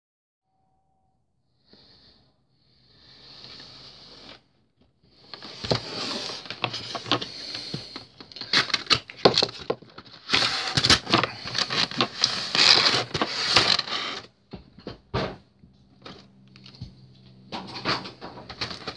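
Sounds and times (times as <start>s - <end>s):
plastic packaging crinkling: 5.3s - 14.3s.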